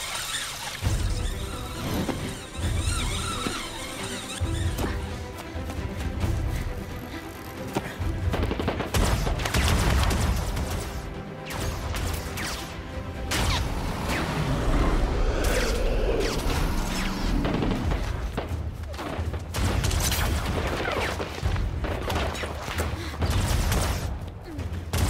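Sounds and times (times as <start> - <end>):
dramatic film score: 0.0 - 25.0
whooshing sweeps: 13.4 - 18.2
deep heavy rumble: 13.6 - 18.4.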